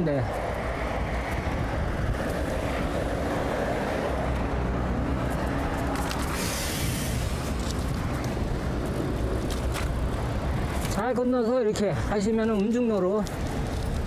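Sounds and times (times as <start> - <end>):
road traffic noise: 0.0 - 14.0
wind on microphone: 0.3 - 11.0
brief hiss: 6.3 - 7.3.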